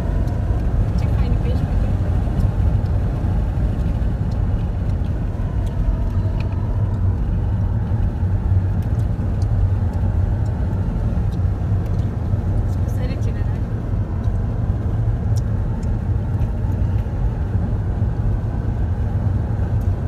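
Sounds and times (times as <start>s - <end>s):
car driving on road: 0.0s - 20.0s.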